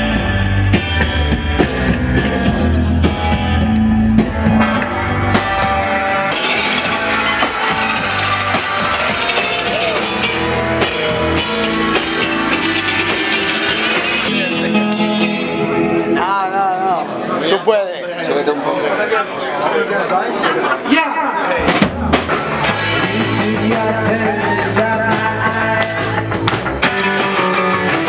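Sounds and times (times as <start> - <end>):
drums hitting steadily: 0.0 - 14.4, 21.6 - 28.0
rock band playing live: 0.0 - 18.0, 20.8 - 28.0.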